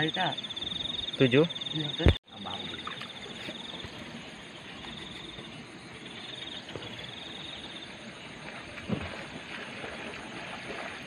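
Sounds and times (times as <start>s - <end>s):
insect trilling: 0.0s - 8.4s.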